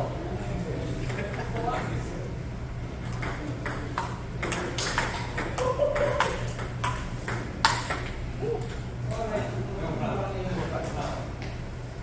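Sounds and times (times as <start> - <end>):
table tennis ball clicking: 3.0 - 8.8.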